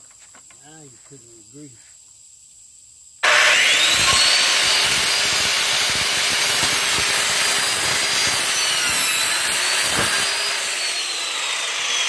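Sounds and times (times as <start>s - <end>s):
circular saw cutting wood: 3.2s - 12.0s.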